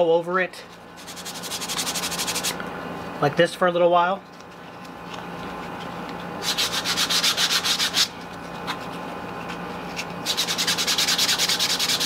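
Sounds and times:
sandpaper rubbing on foam: 1.0s - 2.6s, 6.4s - 8.1s, 10.2s - 12.0s.

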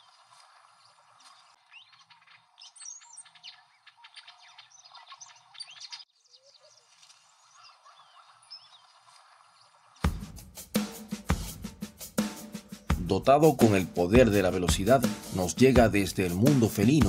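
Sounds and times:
small birds chirping: 0.0s - 10.4s.

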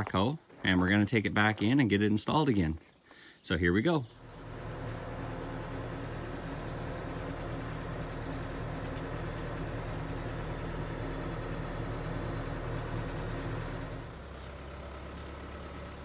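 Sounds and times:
tyres on gravel road: 0.0s - 16.0s
diesel engine running: 4.1s - 16.0s.

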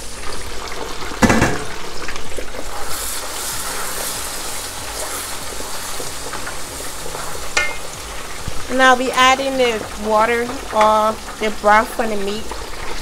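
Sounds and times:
greens frying in oil: 0.0s - 13.0s.

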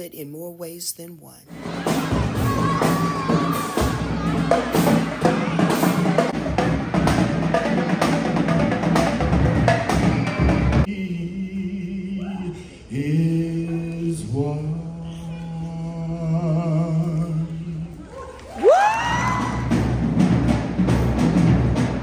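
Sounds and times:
marching drumline: 1.5s - 10.9s, 19.1s - 22.0s.

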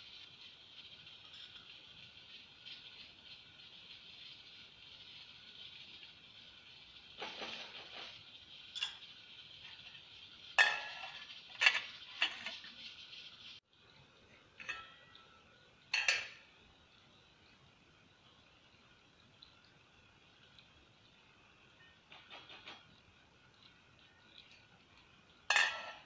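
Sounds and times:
spatula scraping in a pot: 0.1s - 13.6s
metal pot lid clanking: 7.2s - 9.1s, 10.6s - 12.7s, 14.6s - 16.5s, 25.5s - 26.0s.

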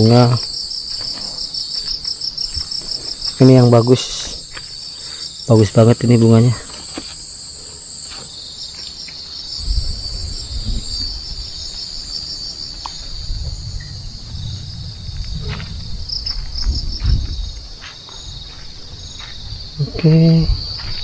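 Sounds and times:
crickets trilling: 0.0s - 21.0s
pulsing insect chirp: 0.0s - 21.0s
low rumble: 9.6s - 11.7s, 13.1s - 17.8s.

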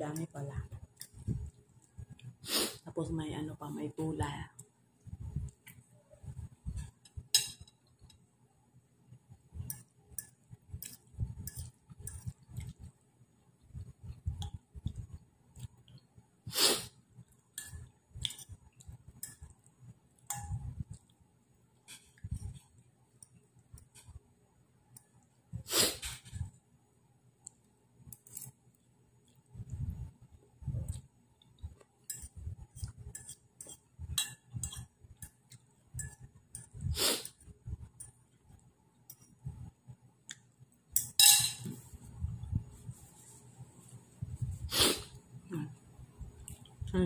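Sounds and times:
fork clinking on a plate: 41.0s - 41.7s.

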